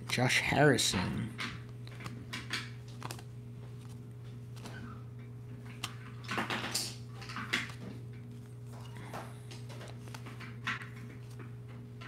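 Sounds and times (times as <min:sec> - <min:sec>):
steady low hum: 0:00.0 - 0:12.0
trading cards flicking and rustling: 0:00.0 - 0:12.0.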